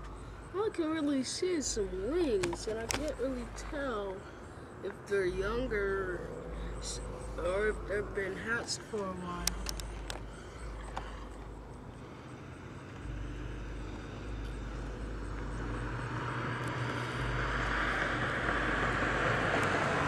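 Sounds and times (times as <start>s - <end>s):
approaching vehicle rushing: 5.4s - 20.0s.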